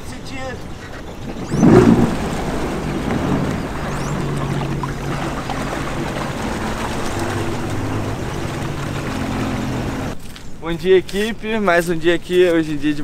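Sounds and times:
jet ski engine revving: 0:01.1 - 0:10.2.

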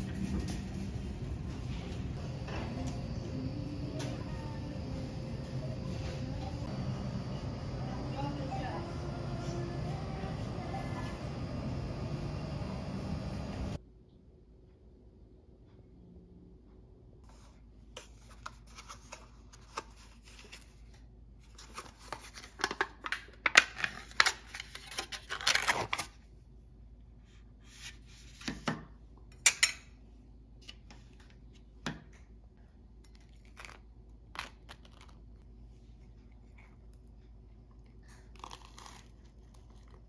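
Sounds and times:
foil seal crinkling and tearing: 0:21.6 - 0:26.2, 0:38.3 - 0:40.0.

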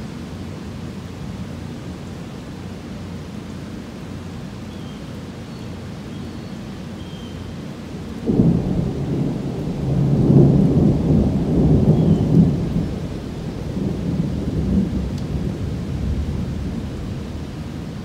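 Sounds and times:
heavy rain hiss: 0:00.0 - 0:18.0
thunder clap and rumble: 0:08.2 - 0:17.9.

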